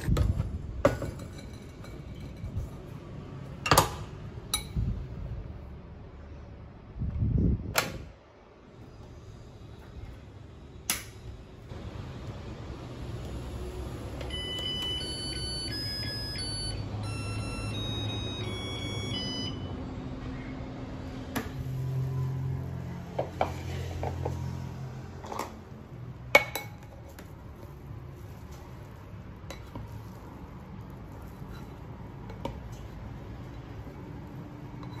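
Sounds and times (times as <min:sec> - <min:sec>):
rice cooker beeping melody: 0:14.2 - 0:19.8.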